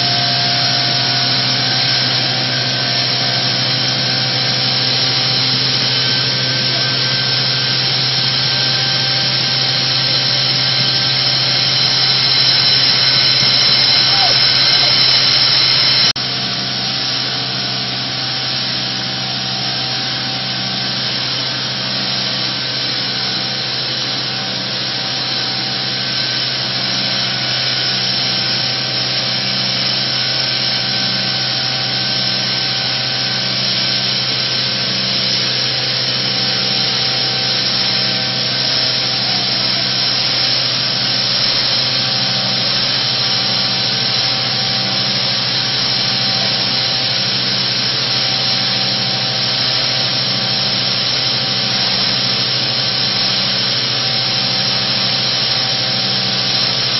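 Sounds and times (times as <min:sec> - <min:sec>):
pneumatic grain conveyor humming: 0:00.0 - 0:56.9.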